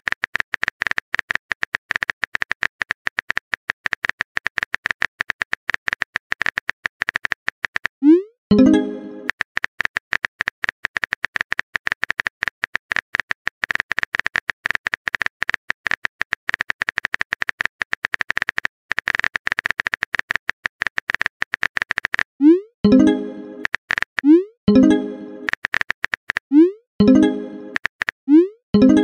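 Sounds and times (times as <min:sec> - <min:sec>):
electronic blips: 0:08.0 - 0:09.3, 0:22.0 - 0:29.0
steady high tone: 0:08.5 - 0:09.3, 0:27.0 - 0:27.8.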